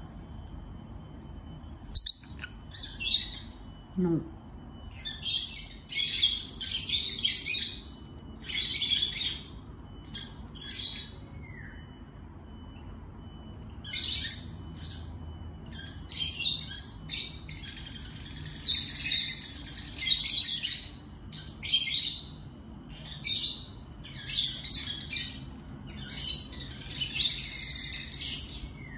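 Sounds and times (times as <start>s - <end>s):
lovebird chirping and chattering: 1.9s - 3.6s.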